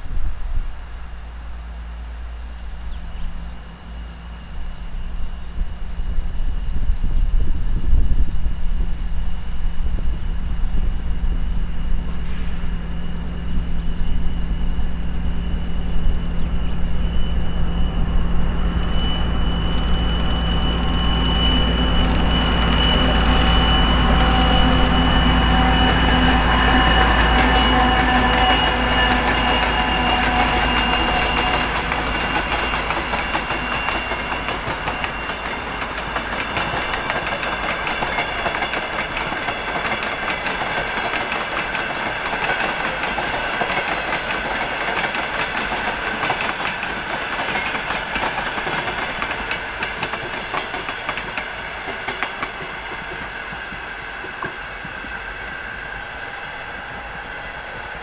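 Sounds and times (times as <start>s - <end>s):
diesel locomotive engine: 0.0s - 58.0s
train wheels clattering over rail joints: 26.8s - 55.1s.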